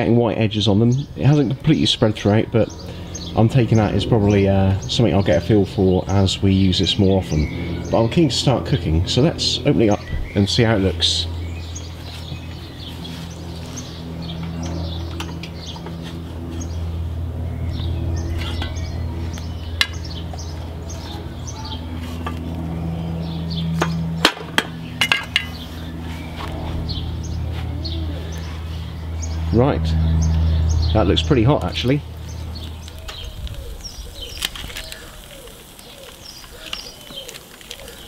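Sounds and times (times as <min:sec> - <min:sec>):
steady low hum: 0:00.0 - 0:37.2
birds chirping: 0:00.0 - 0:38.0
metal grill clinking: 0:18.3 - 0:19.0, 0:23.8 - 0:25.7.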